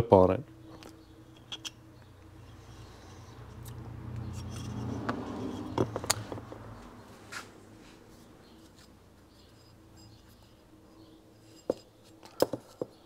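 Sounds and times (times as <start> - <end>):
metal on metal clicks: 0.8 - 1.8.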